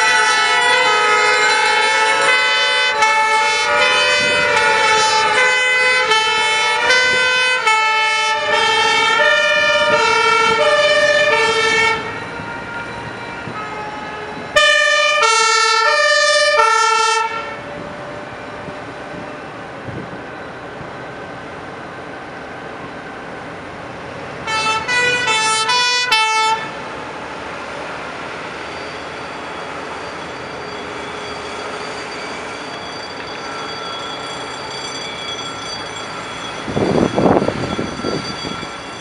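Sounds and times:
gliding siren tone: 0:00.0 - 0:19.6, 0:28.5 - 0:39.0
passing truck engines: 0:00.0 - 0:34.7, 0:35.7 - 0:39.0
two-tone fire truck sirens: 0:00.0 - 0:39.0.

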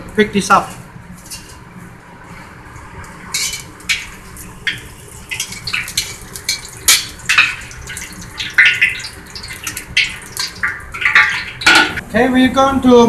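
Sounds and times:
metal utensils clinking and scraping: 0:03.4 - 0:03.7, 0:11.2 - 0:12.0.

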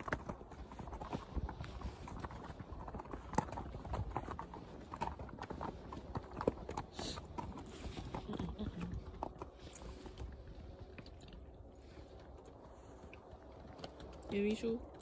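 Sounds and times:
horse hooves clip-clopping: 0:00.0 - 0:15.0.

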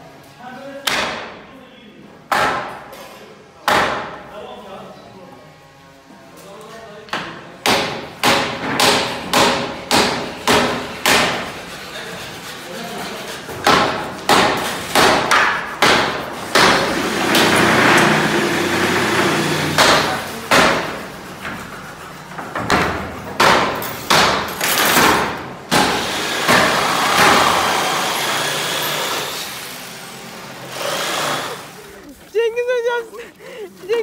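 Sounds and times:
power tool running: 0:16.4 - 0:19.9, 0:25.7 - 0:32.0.

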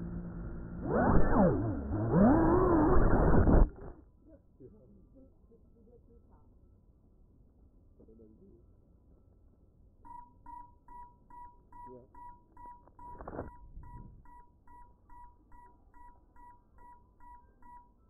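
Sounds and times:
short high electronic beeps: 0:10.1 - 0:18.0.

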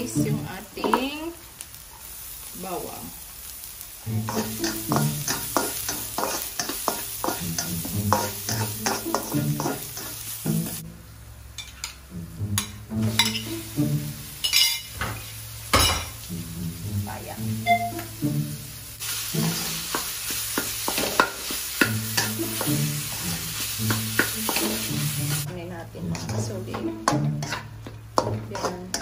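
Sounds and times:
onion and garlic sizzling in oil: 0:00.0 - 0:29.0
spatula scraping a wok: 0:04.1 - 0:10.8, 0:18.3 - 0:29.0.

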